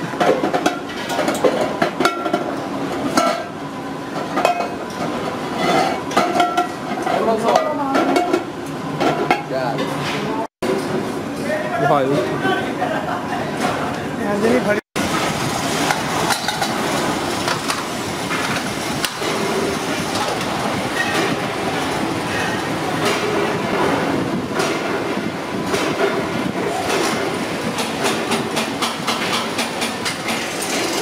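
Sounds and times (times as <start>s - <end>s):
metal-spinning machine running: 25.6s - 31.0s.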